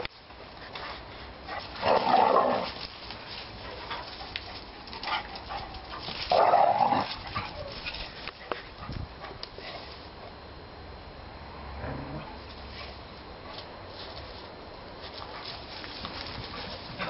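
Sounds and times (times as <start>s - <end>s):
dogs barking roughly: 4.9s - 7.8s.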